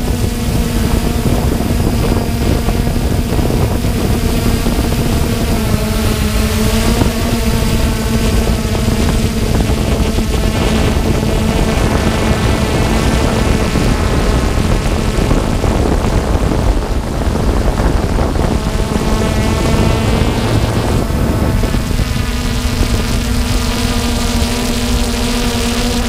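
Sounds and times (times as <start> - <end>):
drone propellers whining: 0.0 - 26.0
wind rumble: 0.0 - 26.0.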